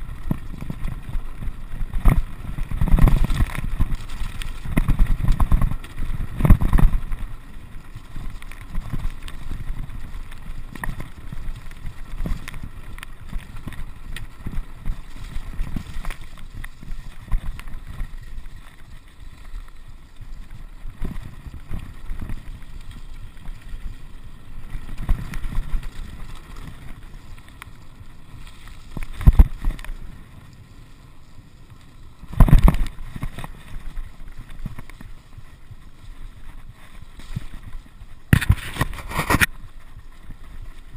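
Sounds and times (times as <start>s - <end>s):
wind buffeting microphone: 0.0s - 18.6s
bike rattling over rocks: 0.0s - 40.9s.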